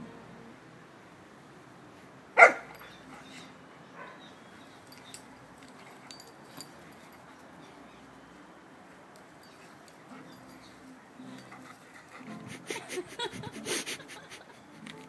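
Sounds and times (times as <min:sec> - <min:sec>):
dog barking: 0:02.4 - 0:02.9, 0:03.9 - 0:04.4.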